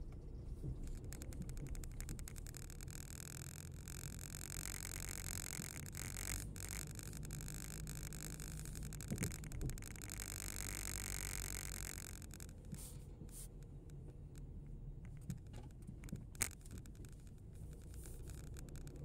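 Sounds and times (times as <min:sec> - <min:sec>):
road noise hiss: 0:00.0 - 0:14.0
car rumble from inside cabin: 0:00.0 - 0:19.0.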